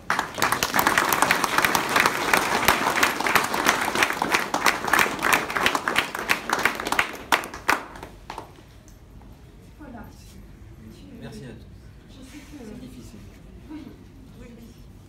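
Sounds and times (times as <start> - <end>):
people applauding: 0.0 - 8.6.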